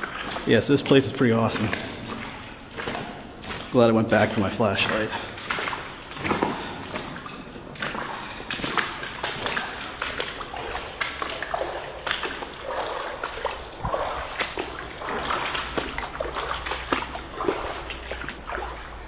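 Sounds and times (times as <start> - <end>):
boots wading through shallow water: 0.0 - 19.0.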